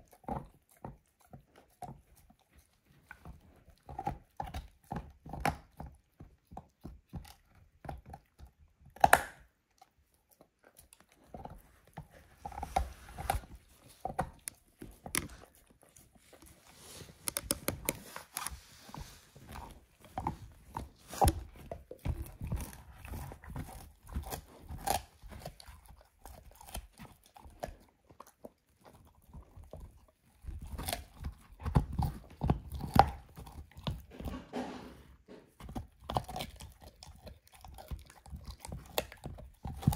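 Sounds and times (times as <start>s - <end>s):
dog chewing bone: 0.0s - 39.9s.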